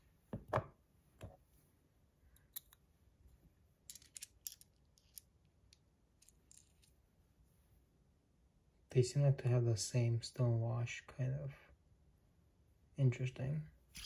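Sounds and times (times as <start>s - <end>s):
small metal parts clicking: 3.9s - 5.3s, 6.2s - 6.9s.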